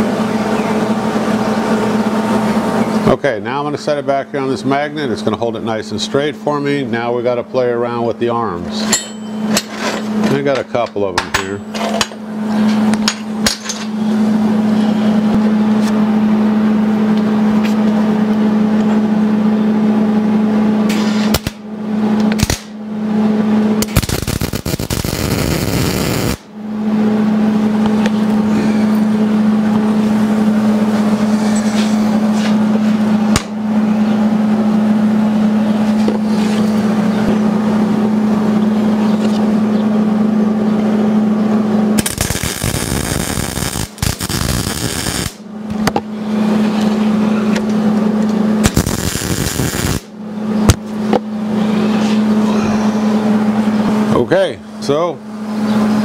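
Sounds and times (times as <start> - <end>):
loud machine hum: 0.0 - 56.0
harsh hiss and crackle: 23.8 - 26.4, 42.0 - 45.4, 48.6 - 50.1.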